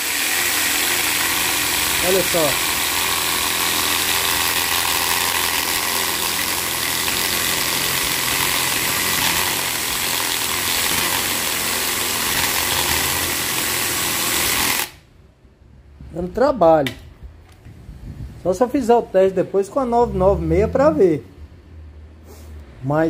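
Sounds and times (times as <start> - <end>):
mini chainsaw cutting wood: 0.0 - 15.0.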